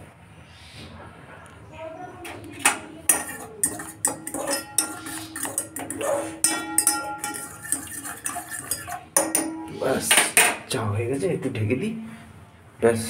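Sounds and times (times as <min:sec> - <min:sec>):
metal spoon scraping a saucepan: 0:02.2 - 0:11.3.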